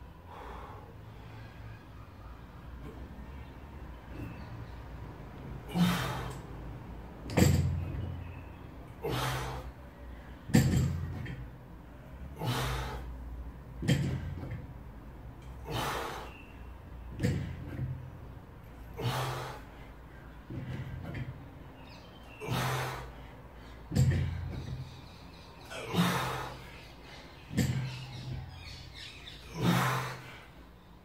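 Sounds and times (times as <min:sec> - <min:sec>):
barbell thudding on rubber floor: 0:07.3 - 0:07.8, 0:10.5 - 0:11.4, 0:13.8 - 0:14.6, 0:23.9 - 0:24.7, 0:27.5 - 0:28.4
person breathing forcefully: 0:12.2 - 0:13.2, 0:18.9 - 0:21.0.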